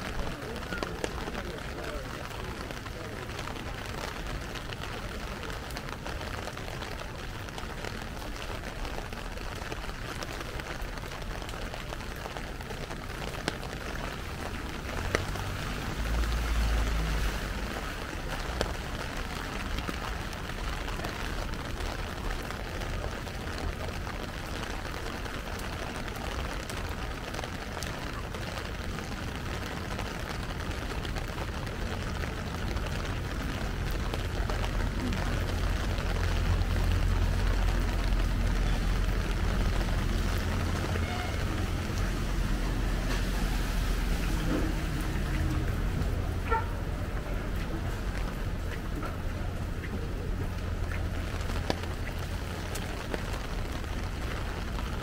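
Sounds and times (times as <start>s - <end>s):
heavy rain on umbrella and street: 0.0s - 55.0s.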